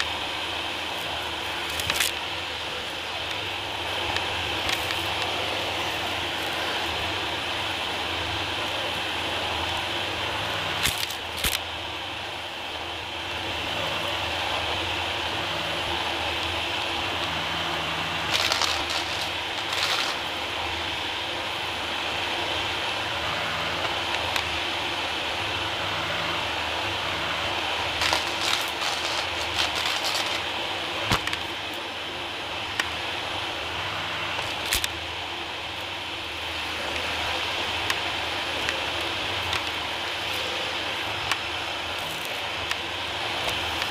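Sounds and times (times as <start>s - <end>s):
vacuum cleaner whining: 0.0s - 43.9s
debris crackling through cleaner head: 18.2s - 20.6s, 27.9s - 31.8s.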